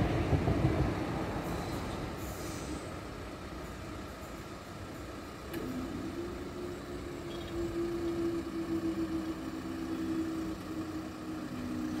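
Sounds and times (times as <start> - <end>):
van engine idling: 2.7 - 12.0
barrier motor humming two low tones: 5.5 - 12.0.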